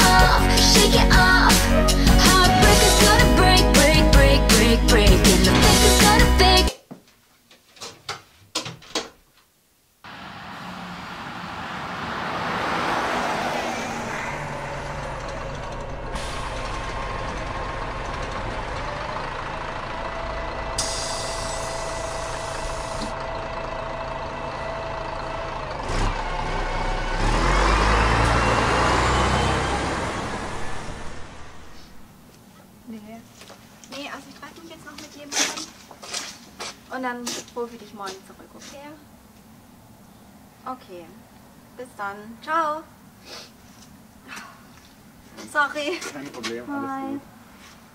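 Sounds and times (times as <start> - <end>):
vehicle passing: 10.0 - 20.6, 24.3 - 32.2
road traffic rumble: 10.0 - 47.9.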